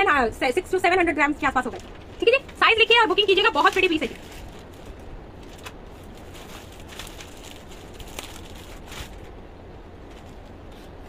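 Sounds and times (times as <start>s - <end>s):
low steady hum: 0.0s - 11.0s
garments rustling: 1.4s - 9.4s.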